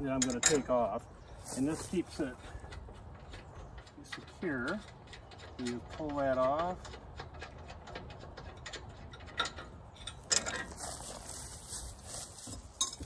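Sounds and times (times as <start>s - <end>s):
metallic clicks and clinks: 0.1s - 0.8s, 2.6s - 10.8s, 12.8s - 13.0s.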